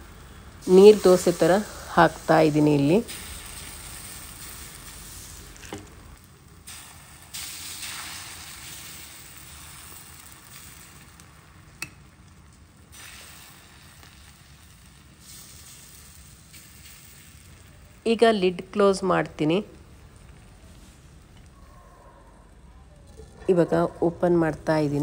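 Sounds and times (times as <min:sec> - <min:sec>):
batter sizzling on hot pan: 0:00.0 - 0:21.7.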